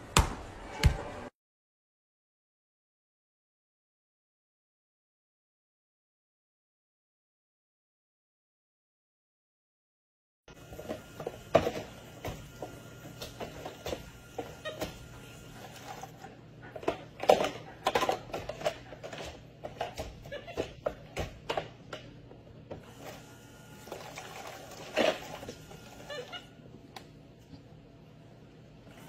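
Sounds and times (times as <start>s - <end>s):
plastic toy dishes clattering: 16.8s - 20.6s.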